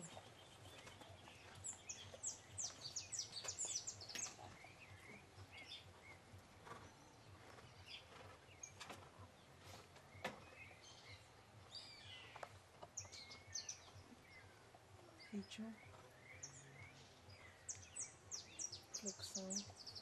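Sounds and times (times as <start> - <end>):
outdoor background hiss: 0.0 - 20.0
songbirds chirping: 0.0 - 20.0.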